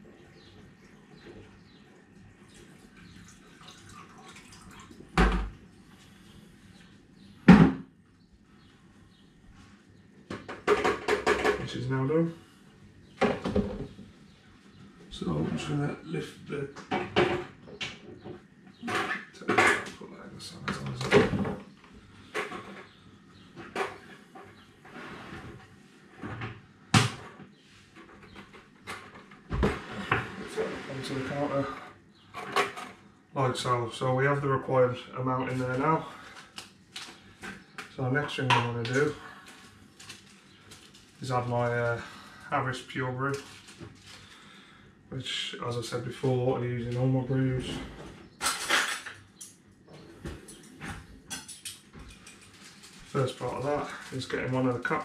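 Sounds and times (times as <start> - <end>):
liquid trickling and dripping: 0.2 - 5.6.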